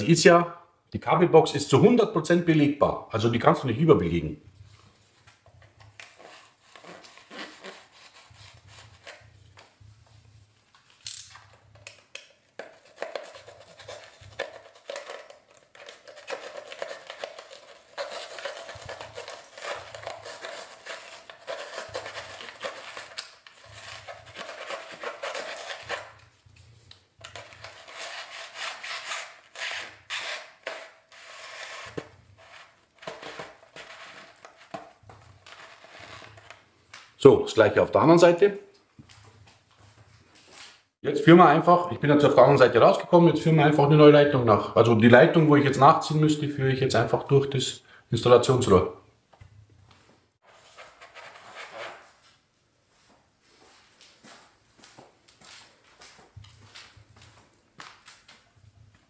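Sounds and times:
plastic conduit scraping through foam: 0:27.3 - 0:36.6.

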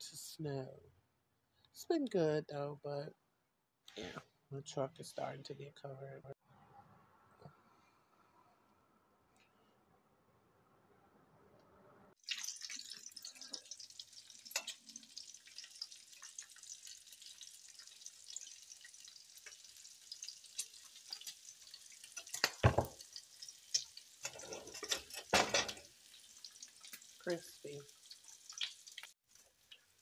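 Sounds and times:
batter sizzling in a skillet: 0:12.2 - 0:30.0.

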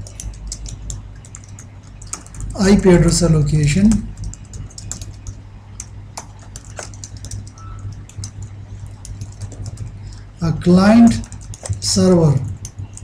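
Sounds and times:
steady low hum: 0:00.0 - 0:13.0
keyboard key clicks: 0:06.2 - 0:10.2, 0:11.2 - 0:11.9.

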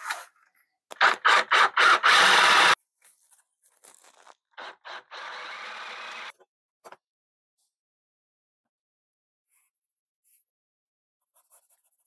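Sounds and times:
cordless drill boring into wood: 0:01.0 - 0:02.8, 0:04.6 - 0:06.3.

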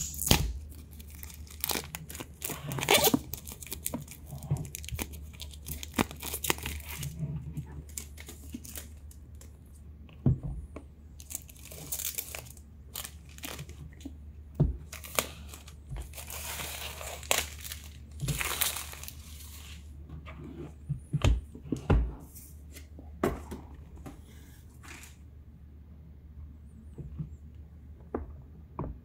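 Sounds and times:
plastic film crinkling and tearing: 0:00.0 - 0:07.2, 0:07.8 - 0:09.6, 0:11.2 - 0:14.0, 0:14.9 - 0:19.9.

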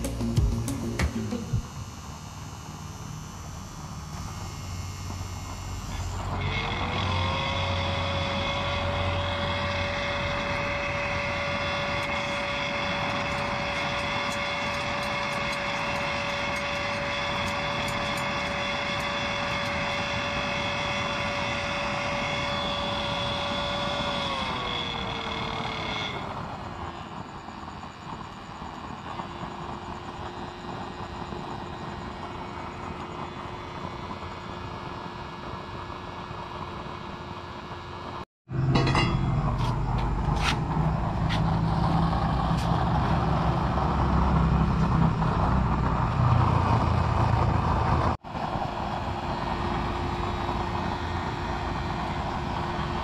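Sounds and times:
blower fan whine: 0:00.0 - 0:53.0
forced-air flame rushing: 0:06.3 - 0:37.7.

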